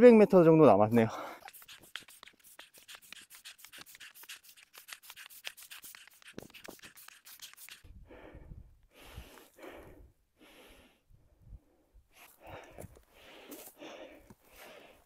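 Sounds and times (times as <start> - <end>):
person breathing heavily: 1.1 - 1.7, 7.9 - 15.0.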